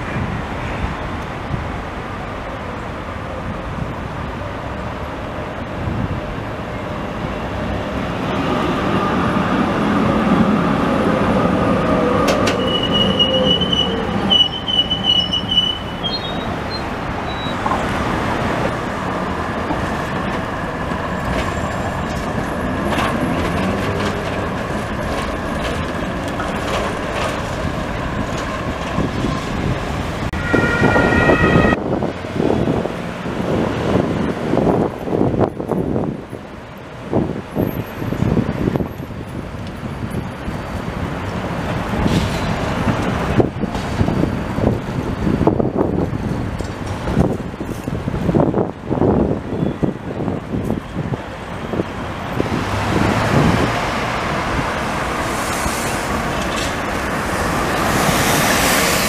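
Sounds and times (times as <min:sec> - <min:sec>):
tram rumbling on rails: 0:00.0 - 0:59.0
tram wheels squealing: 0:08.6 - 0:17.8, 0:30.4 - 0:31.8.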